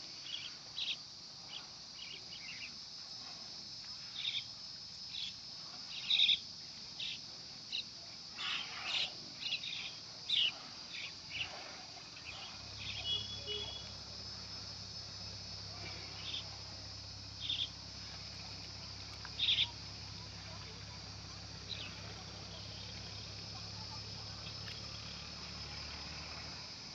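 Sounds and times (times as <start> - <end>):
high insect drone: 0.0 - 26.9
bird chirps and calls: 19.4 - 19.7.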